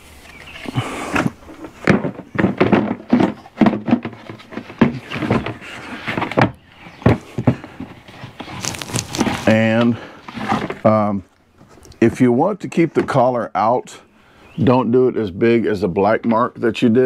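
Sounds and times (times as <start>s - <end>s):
plastic rubbing: 0.0s - 12.0s
plastic parts knocking and thudding: 1.1s - 10.9s.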